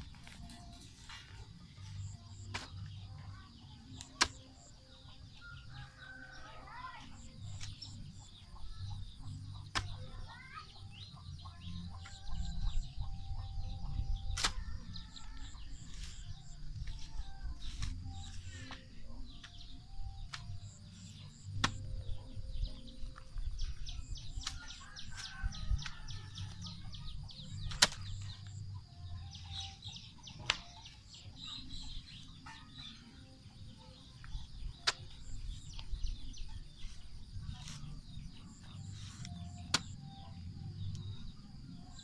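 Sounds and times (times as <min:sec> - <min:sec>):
soil scraping: 0:00.0 - 0:03.3, 0:14.2 - 0:22.0, 0:22.7 - 0:28.7, 0:34.2 - 0:40.4
digging tool striking earth: 0:01.9 - 0:03.0, 0:04.0 - 0:04.6, 0:09.5 - 0:10.2, 0:14.2 - 0:14.8, 0:15.4 - 0:19.6, 0:20.2 - 0:22.0, 0:23.2 - 0:26.0, 0:27.4 - 0:28.6, 0:30.4 - 0:30.8, 0:34.7 - 0:36.0, 0:37.5 - 0:40.1.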